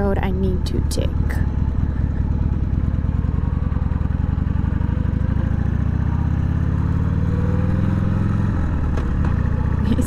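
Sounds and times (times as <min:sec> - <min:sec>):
motorcycle engine running at low revs: 0:00.0 - 0:10.0.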